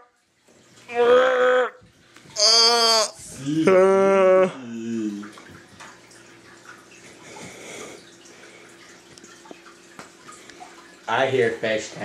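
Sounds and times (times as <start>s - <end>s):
water trickling and dripping: 0.0s - 1.1s, 1.7s - 2.4s, 4.6s - 12.0s.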